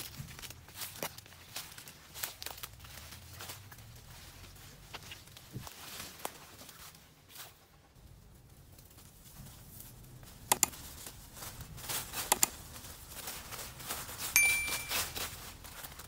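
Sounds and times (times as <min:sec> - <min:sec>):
dry leaves rustling and scraping: 0:00.0 - 0:16.0
high ringing tone: 0:14.4 - 0:15.2.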